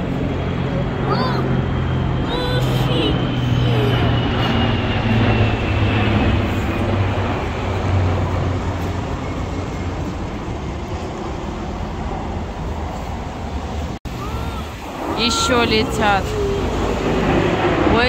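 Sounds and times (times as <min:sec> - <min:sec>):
propeller aircraft engine drone: 0:00.0 - 0:18.0.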